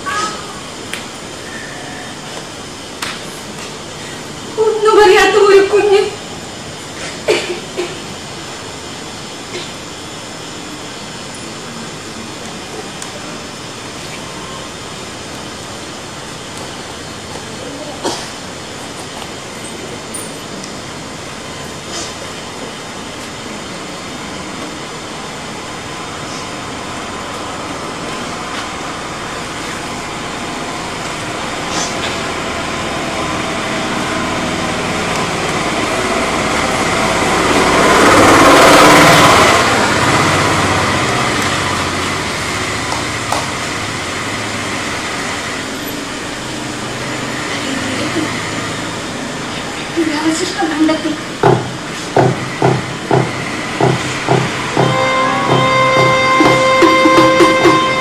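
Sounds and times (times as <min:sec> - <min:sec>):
rushing noise: 0:51.9 - 0:58.0
low droning tones: 0:54.7 - 0:58.0.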